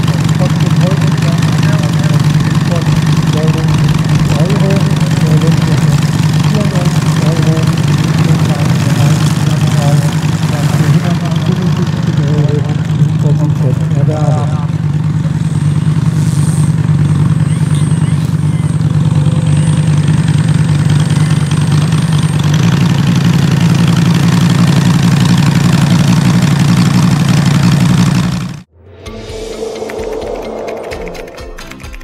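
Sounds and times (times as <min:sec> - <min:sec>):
model airplane engine idling: 0:00.0 - 0:28.7
music: 0:28.7 - 0:32.0.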